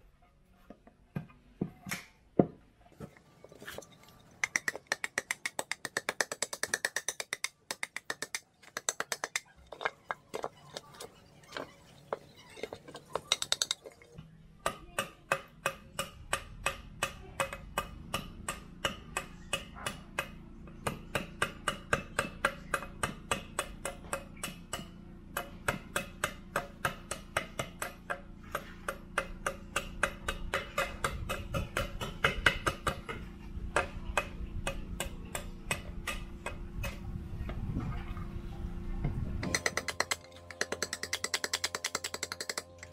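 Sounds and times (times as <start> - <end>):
blade chopping and scraping wood: 3.0 - 14.1, 39.4 - 42.9
steady low hum: 16.0 - 42.9.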